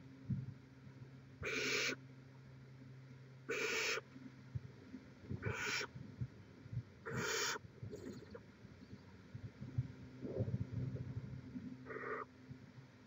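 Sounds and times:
owlets hissing calls: 1.4 - 2.0, 3.5 - 4.0, 5.4 - 5.9, 7.1 - 8.3, 11.8 - 12.3.

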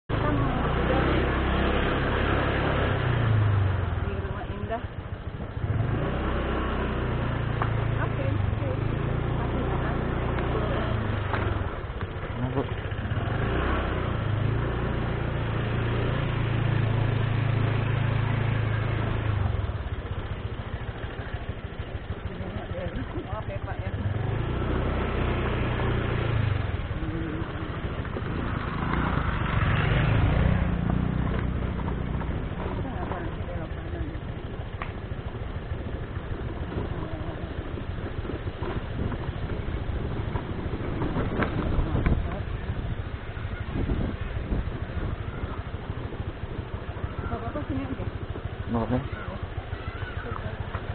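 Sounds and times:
motorcycle engine running: 0.0 - 50.9
motorcycle knocking on rough track: 30.6 - 42.5.

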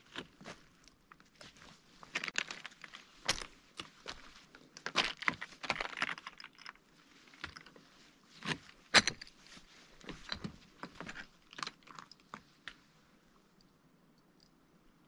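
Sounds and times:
footsteps on rock rubble: 1.4 - 6.2.

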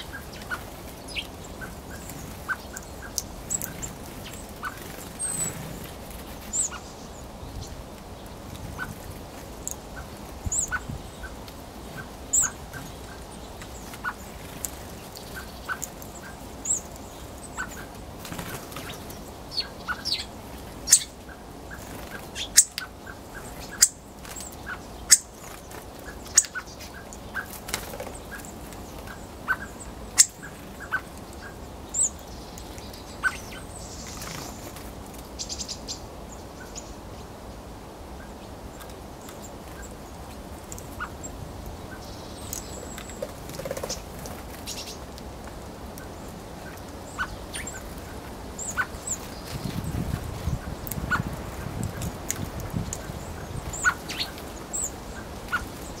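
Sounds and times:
bird giving high calls: 53.7 - 56.0.

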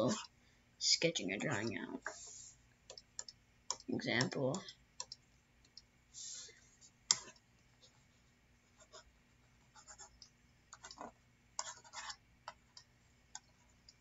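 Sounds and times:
stylus clicks and scratches: 7.1 - 7.5.

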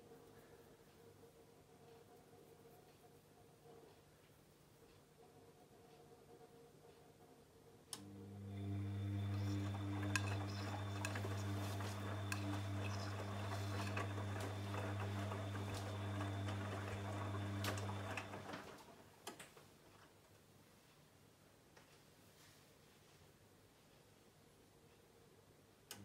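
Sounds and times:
washing machine motor hum: 4.7 - 19.3.

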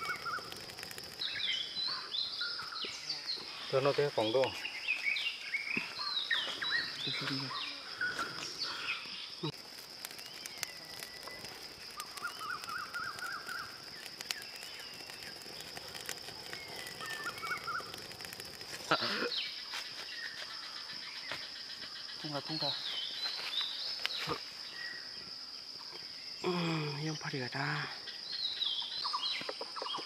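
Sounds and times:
birds calling: 0.0 - 22.1
insect drone: 0.0 - 30.0.

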